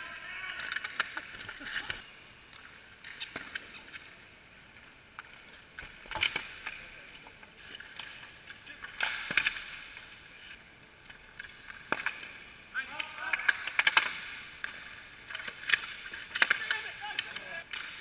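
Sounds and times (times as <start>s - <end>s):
hockey sticks and puck clacking: 0.0s - 18.0s
skate wheels rolling: 0.0s - 18.0s.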